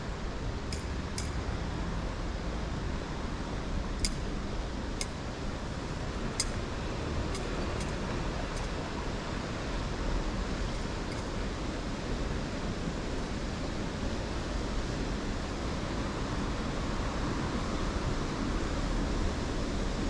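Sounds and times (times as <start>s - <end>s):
street noise rumble: 0.0s - 20.0s
sharp high ticks: 4.0s - 4.3s, 6.4s - 6.6s.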